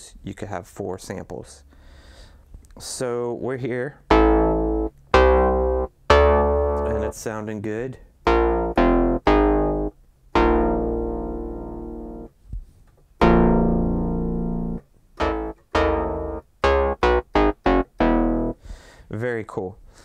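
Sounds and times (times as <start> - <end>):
synthesizer notes: 4.1 - 7.2, 8.3 - 12.3, 13.2 - 18.6.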